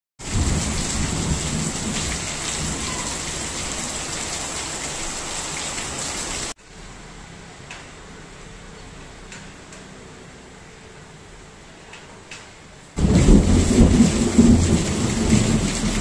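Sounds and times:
heavy rain splashing on soil: 0:00.2 - 0:06.6, 0:13.0 - 0:16.0
rain ticks: 0:13.0 - 0:16.0.

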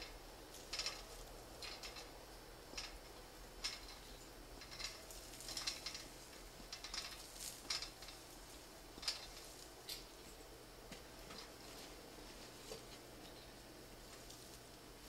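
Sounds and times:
steel ladder clicks and clinks: 0:00.0 - 0:02.1, 0:02.7 - 0:08.3, 0:09.0 - 0:10.1.

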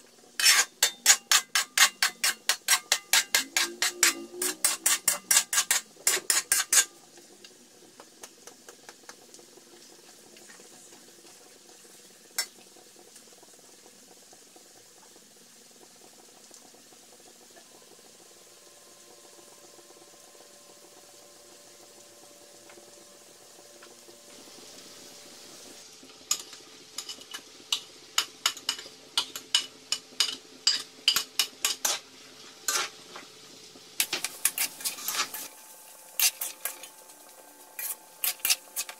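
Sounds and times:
faint sizzle: 0:00.0 - 0:38.9
metal spatula scraping a wok: 0:00.4 - 0:07.0, 0:30.2 - 0:33.1, 0:34.0 - 0:37.0, 0:37.8 - 0:38.9.

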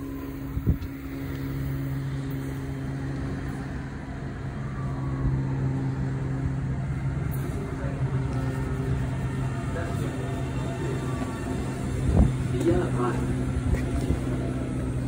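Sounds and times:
train electric hum: 0:00.0 - 0:15.0
train wheels rumbling on rails: 0:06.6 - 0:15.0.

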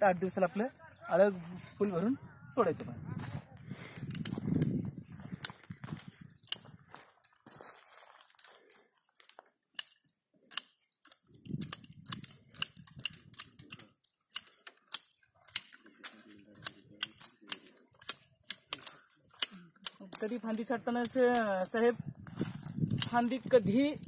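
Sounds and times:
leaves rustling: 0:00.2 - 0:09.4, 0:18.8 - 0:24.0
twigs clicking and snapping: 0:03.8 - 0:23.9.

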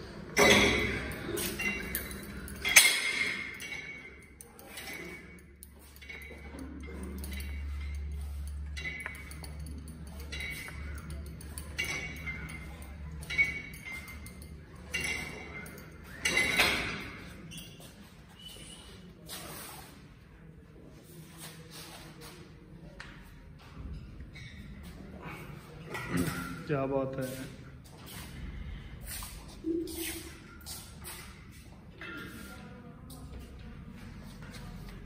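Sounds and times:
weight plates clinking: 0:00.0 - 0:18.0.

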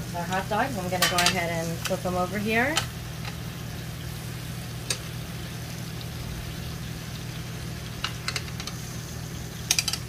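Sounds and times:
meat sizzling on a grill: 0:00.0 - 0:10.0
metal tongs clicking on grill: 0:00.3 - 0:02.0, 0:08.0 - 0:08.8, 0:09.7 - 0:10.0.

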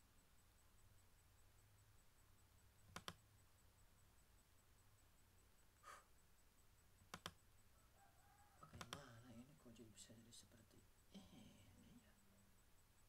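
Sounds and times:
faint low hum: 0:00.0 - 0:13.0
computer mouse clicks: 0:02.9 - 0:03.2, 0:07.0 - 0:07.4, 0:08.6 - 0:09.0
short breath: 0:05.8 - 0:06.1.

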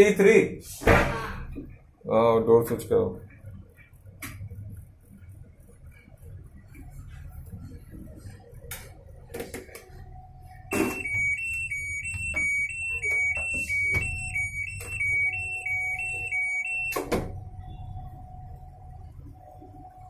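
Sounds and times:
two-tone electronic alarm beeps: 0:10.5 - 0:19.0.

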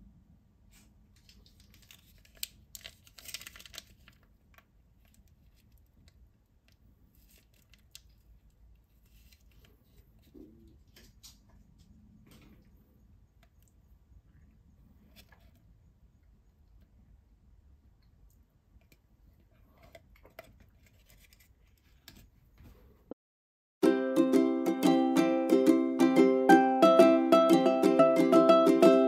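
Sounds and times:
plastic packet tearing: 0:01.2 - 0:05.9, 0:07.1 - 0:08.4
plastic packet crinkling: 0:01.2 - 0:09.7.

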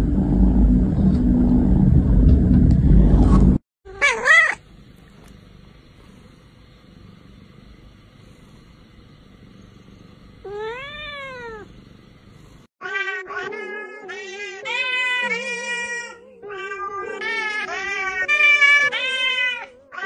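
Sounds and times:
loud low rumble: 0:00.0 - 0:03.6
cat meowing: 0:03.9 - 0:04.6, 0:10.4 - 0:11.7.

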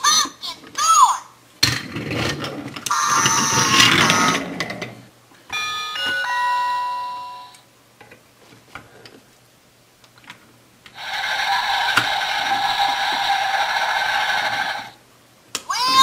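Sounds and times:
held electronic tones: 0:02.9 - 0:04.6
multi-note electronic chime: 0:05.6 - 0:07.6.

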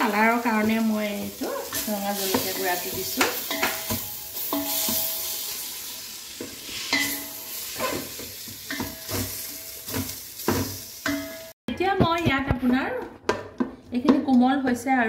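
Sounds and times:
masala sizzling in a pot: 0:00.0 - 0:11.6
spatula stirring and scraping: 0:00.1 - 0:11.6.

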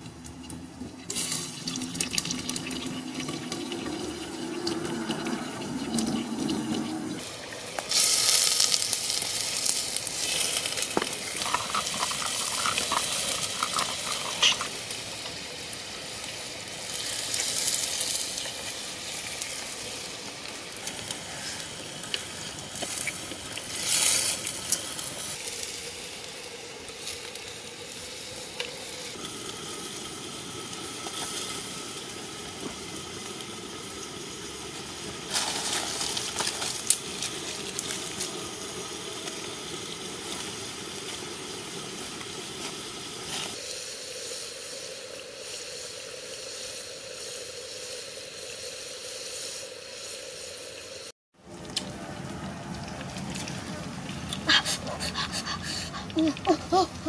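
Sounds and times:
pot bubbling over fire: 0:00.0 - 0:49.9, 0:50.8 - 0:57.0
steady hiss: 0:05.4 - 0:51.1
stick stirring and scraping pot: 0:10.2 - 0:14.9.

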